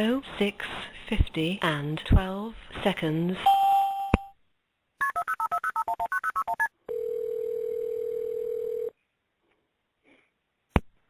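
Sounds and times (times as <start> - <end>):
telephone ring tone: 5.0 - 8.9.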